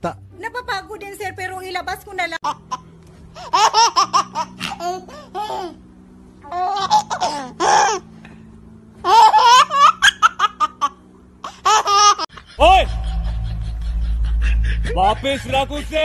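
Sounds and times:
baby giggling: 0:06.4 - 0:08.0.

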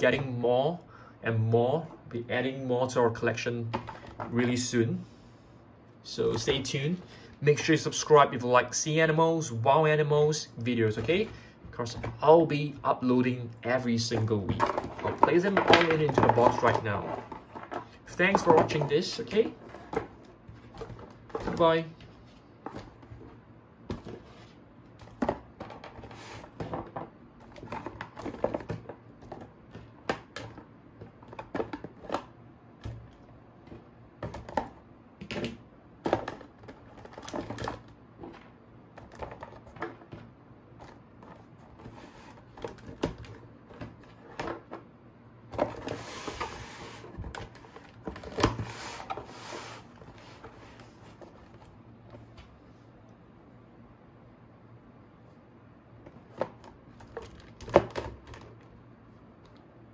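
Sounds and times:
plastic figures clattering: 0:13.7 - 0:21.9, 0:25.0 - 0:44.9, 0:56.0 - 0:58.8.

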